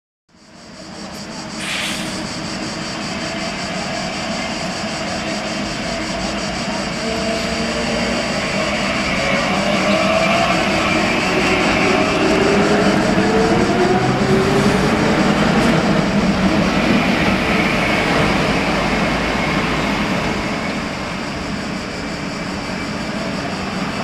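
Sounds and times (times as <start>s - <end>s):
tram electric drive whining: 0.4s - 24.0s
brief hiss: 1.2s - 2.4s.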